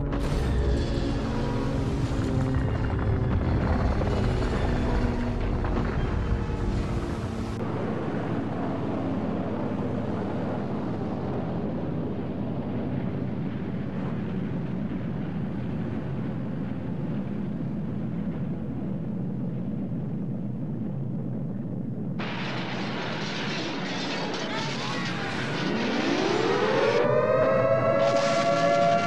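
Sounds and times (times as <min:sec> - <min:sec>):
explosion rumbling roar: 0:00.0 - 0:07.6, 0:22.2 - 0:29.0.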